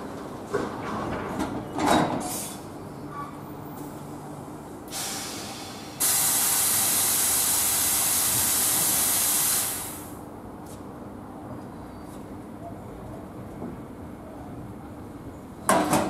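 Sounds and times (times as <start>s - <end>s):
compressed air hissing: 4.9s - 10.2s.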